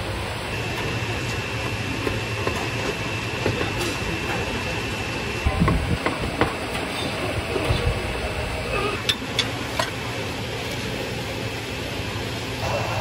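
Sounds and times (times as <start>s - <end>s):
steady machine noise: 0.0s - 13.0s.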